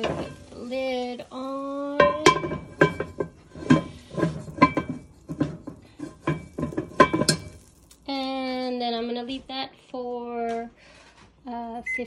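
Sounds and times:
pot lid clinking on rim: 0:06.2 - 0:07.7.

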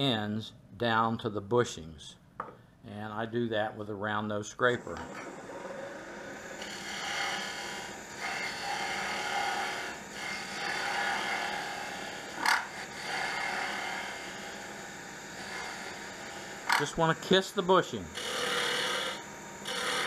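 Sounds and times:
scraper cutting wood on a lathe: 0:04.9 - 0:20.0.

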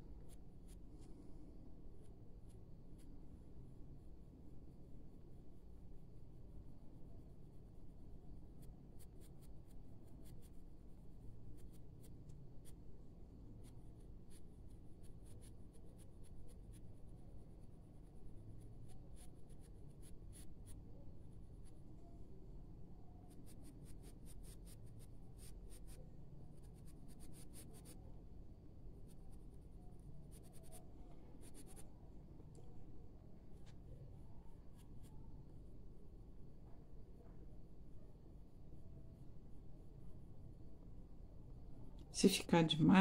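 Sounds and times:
faint low hum: 0:00.0 - 0:43.0
pencil scratching on paper: 0:08.6 - 0:10.6, 0:11.5 - 0:12.8, 0:13.6 - 0:20.8, 0:23.2 - 0:28.1, 0:29.0 - 0:31.9.

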